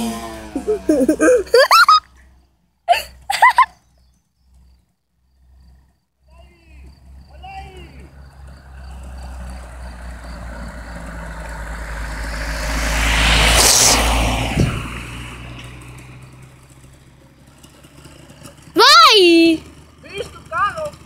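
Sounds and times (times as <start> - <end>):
motorcycle engine approaching: 0.0 - 1.6, 6.7 - 21.0.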